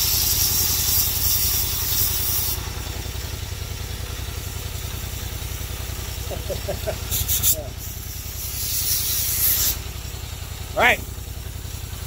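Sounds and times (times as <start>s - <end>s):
air blowing hiss: 0.0s - 2.7s, 7.0s - 9.9s
go-kart engine idling: 0.0s - 12.0s.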